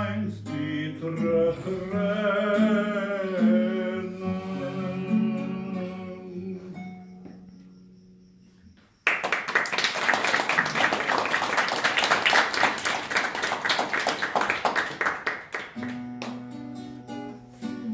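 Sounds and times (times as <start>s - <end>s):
acoustic guitar playing: 0.0s - 8.0s, 15.4s - 17.9s
audience applauding: 9.0s - 16.4s.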